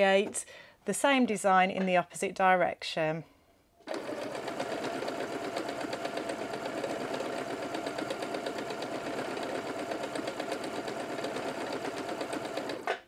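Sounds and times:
sewing machine running: 3.8s - 13.0s.

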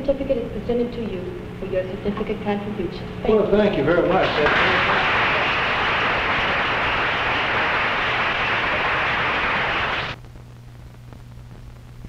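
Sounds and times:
faint low hum: 0.0s - 12.0s
crowd applauding: 4.1s - 10.2s.

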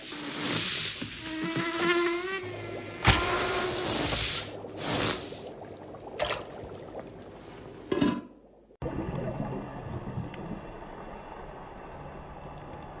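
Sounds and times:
underwater water noise: 0.0s - 13.0s.

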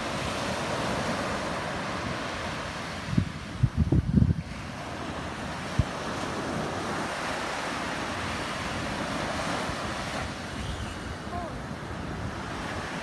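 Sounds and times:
surf washing onto beach: 0.0s - 13.0s
wind rumbling on microphone: 0.0s - 13.0s.

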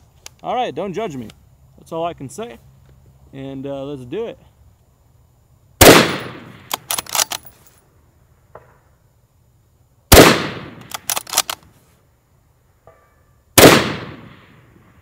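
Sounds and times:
rifle shots: 5.8s - 7.5s, 10.1s - 11.6s, 13.6s - 14.8s
metallic clicks of rifle bolt: 6.1s - 7.7s, 10.7s - 11.8s
faint ring of steel target: 12.8s - 13.4s.

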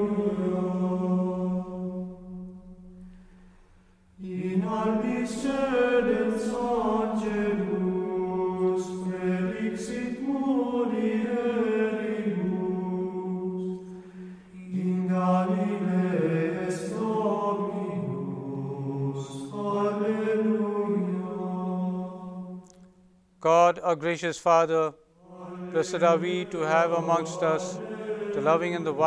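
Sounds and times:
single voice singing plainchant: 25.4s - 29.0s.

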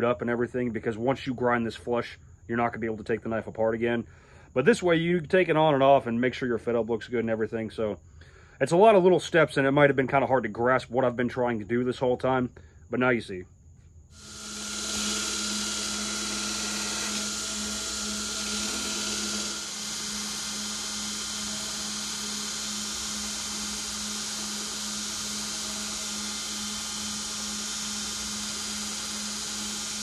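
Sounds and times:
belt grinder motor hum: 14.2s - 30.0s
grinder high hiss: 14.2s - 30.0s.

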